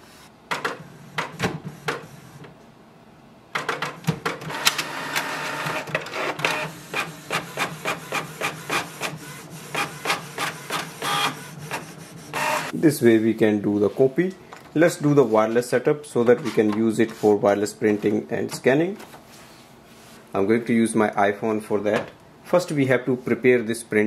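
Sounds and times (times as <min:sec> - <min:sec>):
printer running with hum: 0:03.6 - 0:12.8.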